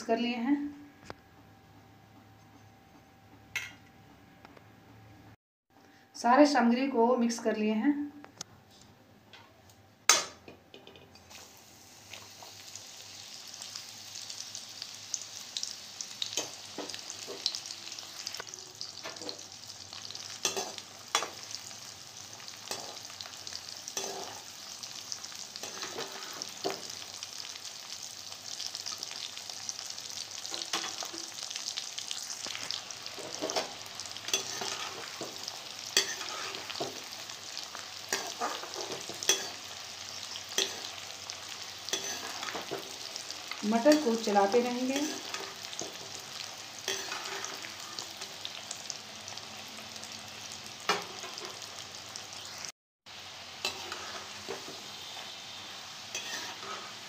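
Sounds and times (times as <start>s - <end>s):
peas sizzling in hot oil: 11.2s - 57.0s
spatula scraping and knocking pan: 33.2s - 37.0s.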